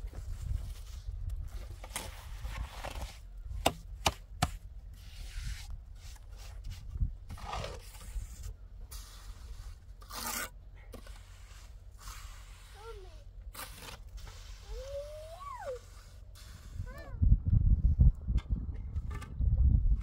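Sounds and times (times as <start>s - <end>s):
rubbing and scraping: 0.0s - 17.1s
low rumble: 17.1s - 20.0s.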